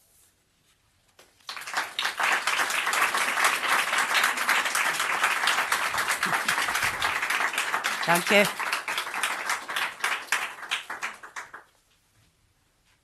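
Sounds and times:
audience applause: 0:01.4 - 0:11.7.

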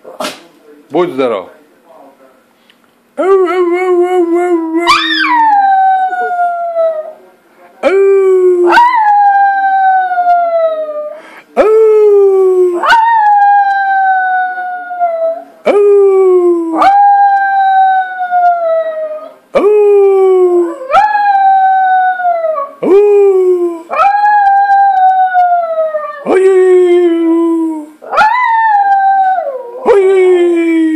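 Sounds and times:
small dog howling: 0:04.6 - 0:07.2, 0:28.0 - 0:30.5.

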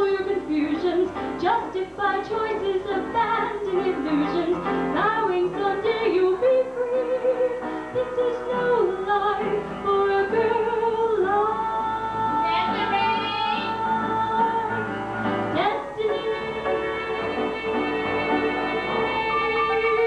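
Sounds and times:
woman singing into microphone: 0:00.0 - 0:20.0.

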